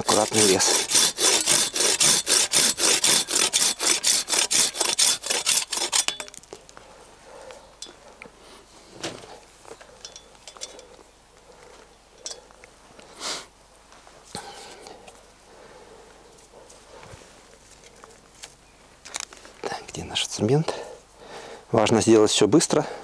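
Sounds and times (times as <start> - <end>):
hand saw cutting a branch: 0.0 - 6.4
handling clicks and rustles: 9.0 - 12.8.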